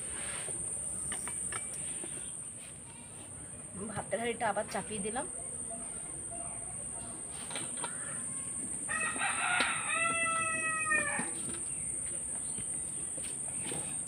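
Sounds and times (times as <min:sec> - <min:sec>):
rooster crowing: 0:08.8 - 0:11.4.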